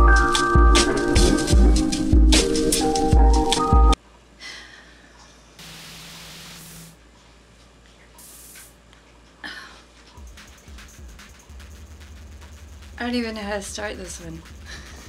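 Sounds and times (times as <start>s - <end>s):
intro music with heavy bass beats: 0.1s - 3.9s, 10.2s - 15.0s
soft hissing sounds: 5.6s - 7.0s, 8.0s - 8.8s.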